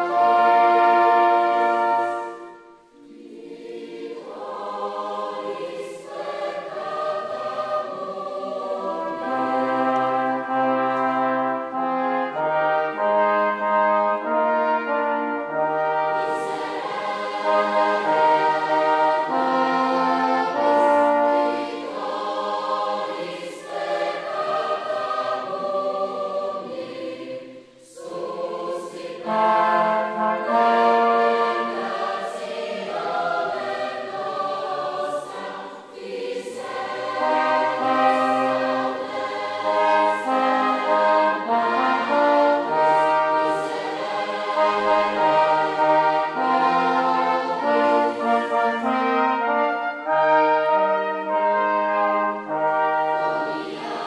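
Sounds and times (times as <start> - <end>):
brass quartet chords: 0.0 - 3.0, 8.7 - 22.2, 29.0 - 35.4, 36.6 - 54.0
choir singing: 0.0 - 54.0.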